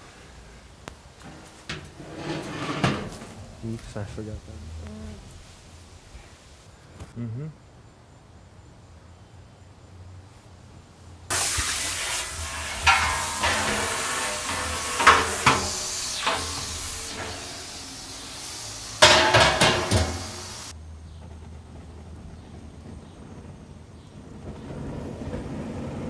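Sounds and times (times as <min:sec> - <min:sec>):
metal pots and lids clanking: 0:11.3 - 0:20.7
hiss: 0:11.3 - 0:20.8.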